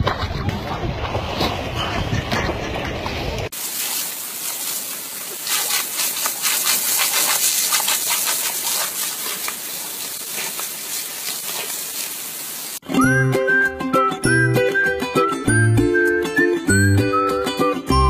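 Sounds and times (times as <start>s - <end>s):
water jet hissing and splattering: 3.5s - 12.8s
dog biting water stream: 3.8s - 12.0s.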